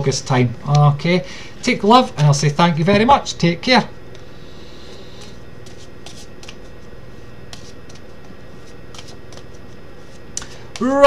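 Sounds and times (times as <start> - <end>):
low hum and hiss: 0.0 - 11.0
cards being shuffled: 5.1 - 6.9, 7.5 - 10.9.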